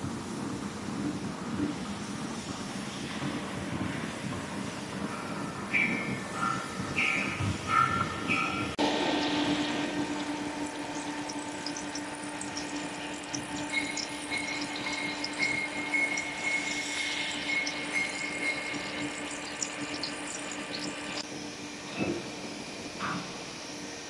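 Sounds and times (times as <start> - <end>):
thin high whine: 5.2 - 21.2
lathe machine hum: 6.3 - 21.7.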